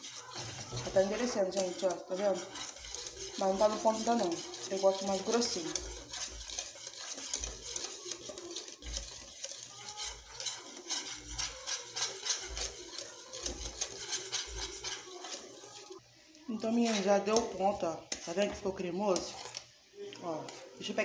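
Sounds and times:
whisk scraping a saucepan: 0:00.0 - 0:21.0.

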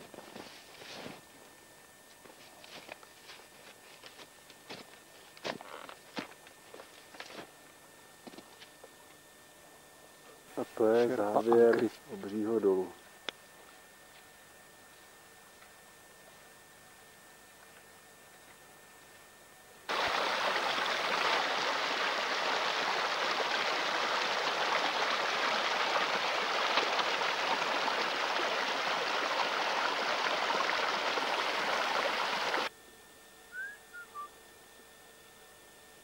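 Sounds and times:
stream water rushing: 0:19.9 - 0:32.7.

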